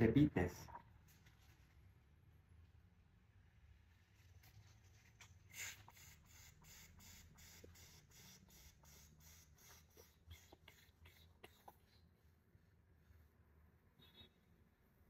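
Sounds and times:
faint sips of air through lips: 0:04.4 - 0:12.2.

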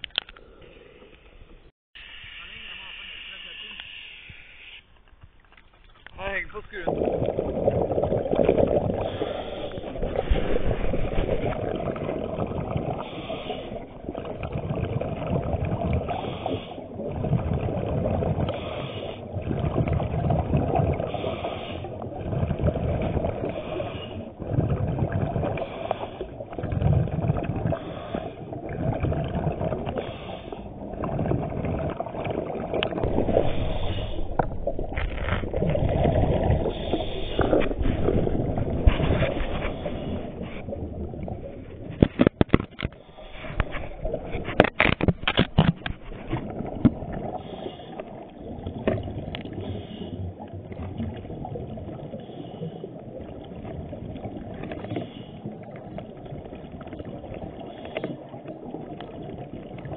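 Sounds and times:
regulator inhale hiss: 0:02.0 - 0:04.8, 0:09.0 - 0:10.5, 0:13.0 - 0:13.8, 0:16.1 - 0:16.9, 0:18.5 - 0:19.3, 0:21.1 - 0:22.0, 0:23.5 - 0:24.3, 0:25.6 - 0:26.3, 0:27.8 - 0:28.5, 0:30.0 - 0:30.7, 0:33.3 - 0:34.5, 0:36.6 - 0:37.7, 0:47.3 - 0:48.2, 0:49.5 - 0:50.2, 0:52.1 - 0:53.0, 0:54.8 - 0:55.5
exhaled bubbles rumbling: 0:05.8 - 0:59.9.

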